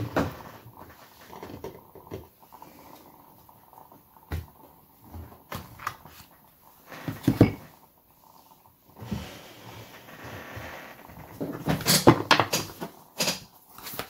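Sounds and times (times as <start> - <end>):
cards being shuffled: 13.7 - 14.0.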